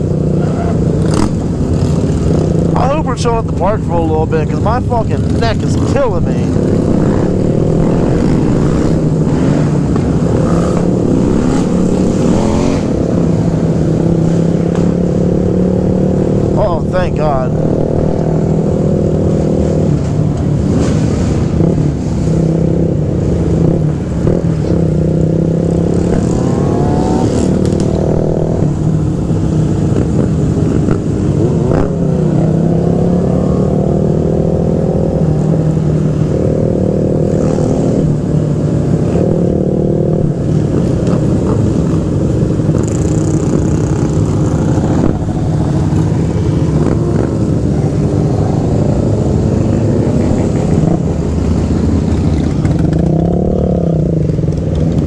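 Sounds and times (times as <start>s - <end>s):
dirt bikes revving: 0.0s - 55.0s
motorcycle engine running: 33.0s - 55.0s.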